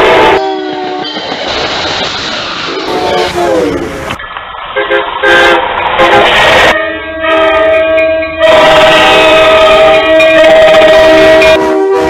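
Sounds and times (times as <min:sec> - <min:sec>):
locomotive air horn blast: 0:00.0 - 0:01.1, 0:02.8 - 0:04.0, 0:04.8 - 0:12.0
oncoming train rushing: 0:00.0 - 0:12.0.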